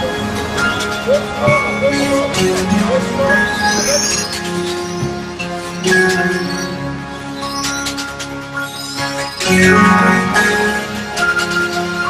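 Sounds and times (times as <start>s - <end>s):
background music with held notes: 0.0s - 12.0s.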